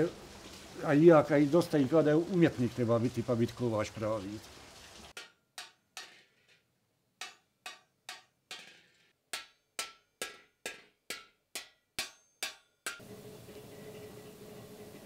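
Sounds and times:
rushing water noise: 0.0s - 5.2s
trip hammer striking iron on anvil: 5.2s - 6.4s, 7.2s - 13.1s.

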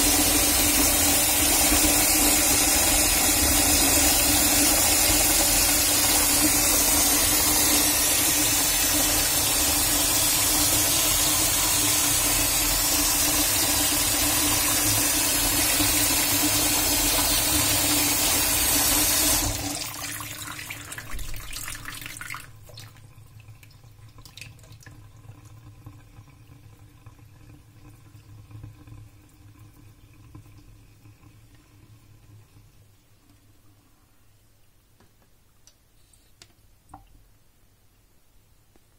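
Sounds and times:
tap water splashing in sink: 14.6s - 27.2s
water trickling and dripping: 21.0s - 33.0s.

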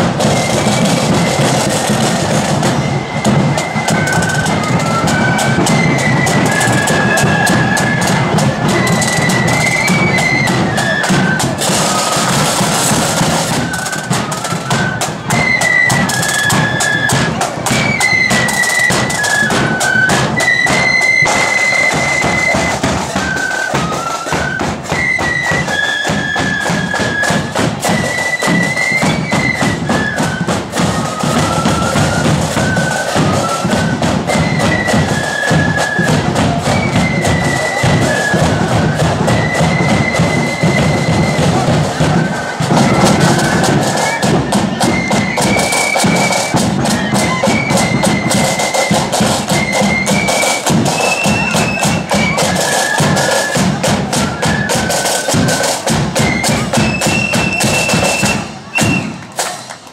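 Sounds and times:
flute melody: 0.0s - 59.9s
side drums and bass drum: 0.0s - 59.9s.

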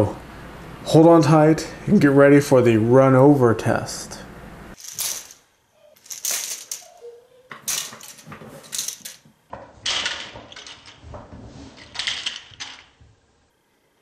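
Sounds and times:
plastic pieces clicking and clattering: 4.8s - 5.4s, 6.0s - 11.1s, 11.8s - 13.0s.

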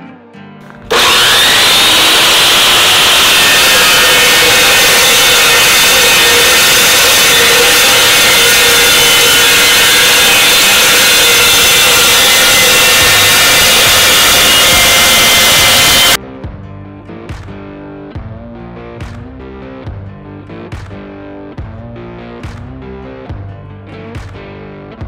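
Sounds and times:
chop saw cutting steel: 0.8s - 16.2s.

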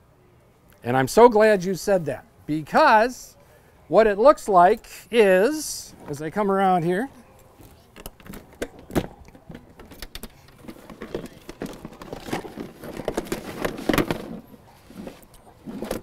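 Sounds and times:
cable handling clicks and rustling: 7.0s - 16.0s.

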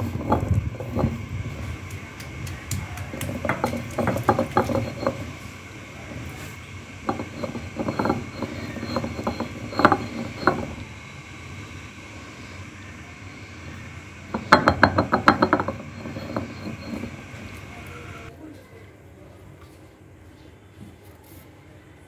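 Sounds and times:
stone roller knocking on stone: 0.0s - 1.7s, 2.8s - 5.4s, 7.0s - 10.9s, 14.3s - 18.3s.

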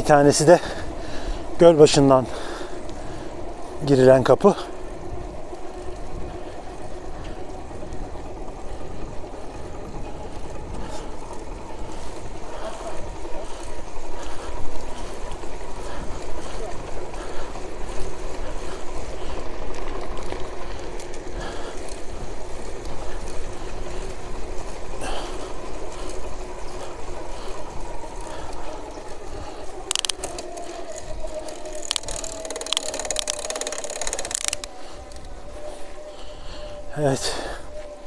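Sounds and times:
freewheel ticking: 0.0s - 35.5s
electric bike motor whine: 0.0s - 38.0s
tyre and wind rumble: 0.0s - 38.0s.

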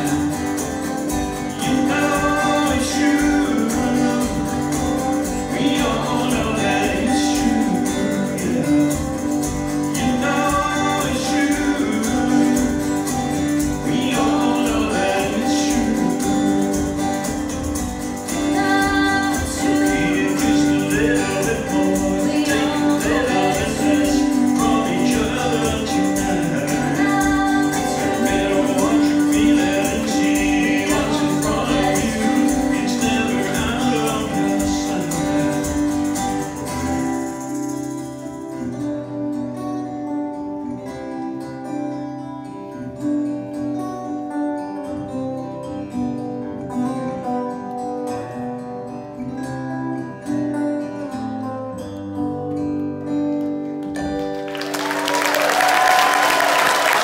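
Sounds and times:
person singing: 0.0s - 37.6s
acoustic guitars: 0.0s - 57.0s.

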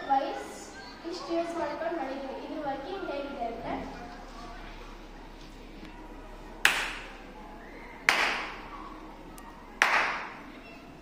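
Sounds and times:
hand claps with room echo: 6.6s - 7.2s, 8.1s - 8.6s, 9.8s - 10.4s.

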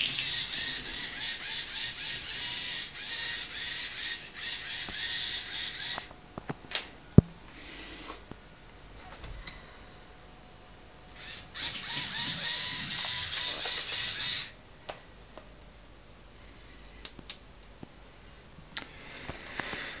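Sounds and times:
small electric motors whirring: 0.1s - 6.1s, 11.1s - 14.6s.

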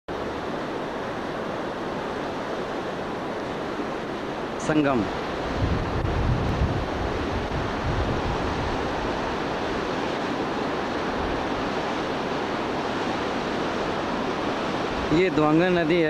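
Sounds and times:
water rushing over boulders: 0.1s - 16.0s
wind buffeting microphone: 0.2s - 16.0s.

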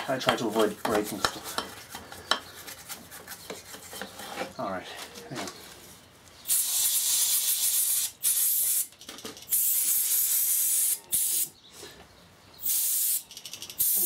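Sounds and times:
aerosol spray can hissing: 6.5s - 8.9s, 12.6s - 13.2s.

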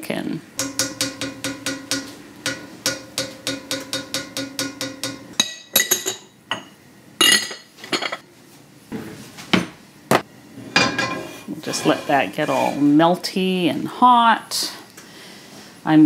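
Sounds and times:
spoon tapping skillet: 0.6s - 6.7s
kitchen items clinking: 5.0s - 8.3s.

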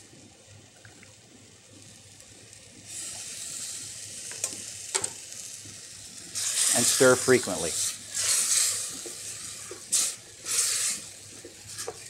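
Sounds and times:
rice sizzling in a saucepan: 0.0s - 12.0s.

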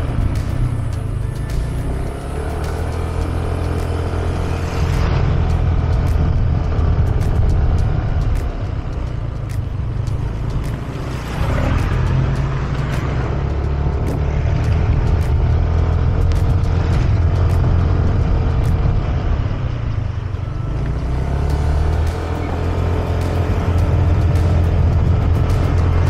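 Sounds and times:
motorcycle engine rumble: 0.0s - 26.0s
wind rush on microphone: 4.4s - 20.6s.

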